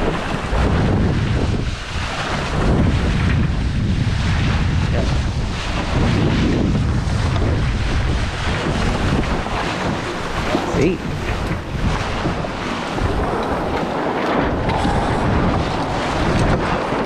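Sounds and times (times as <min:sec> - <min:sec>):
water splashing along a hull: 0:00.0 - 0:17.0
wind buffeting the microphone: 0:00.0 - 0:17.0.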